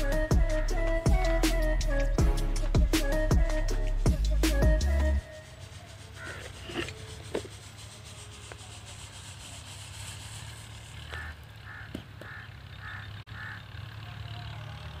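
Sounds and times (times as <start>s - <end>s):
bird calling: 5.2s - 7.5s, 10.9s - 14.4s.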